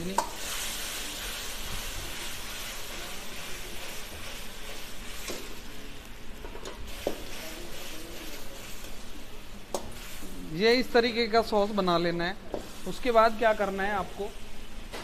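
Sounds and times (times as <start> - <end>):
sauce sizzling and bubbling in wok: 0.0 - 11.8, 12.4 - 15.0.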